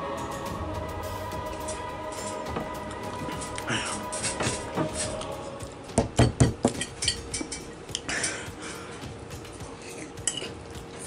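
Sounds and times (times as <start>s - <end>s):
background music: 0.0s - 11.0s
utensil clinking against a dish: 6.2s - 8.5s, 9.6s - 11.0s.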